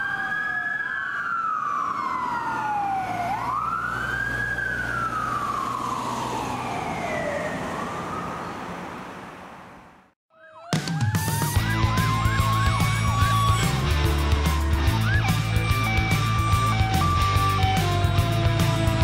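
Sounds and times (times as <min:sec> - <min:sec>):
fire engine siren wailing: 0:00.0 - 0:09.3, 0:10.4 - 0:19.0
faint siren sweeps: 0:00.0 - 0:19.0
diesel engine rumble: 0:11.6 - 0:19.0.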